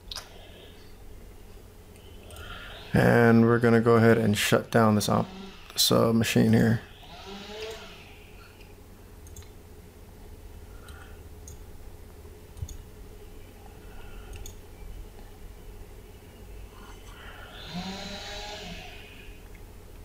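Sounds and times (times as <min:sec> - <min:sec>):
low steady hum: 0:00.0 - 0:20.0
computer mouse clicks: 0:08.6 - 0:09.6, 0:10.8 - 0:11.6, 0:12.5 - 0:12.8, 0:14.3 - 0:14.6.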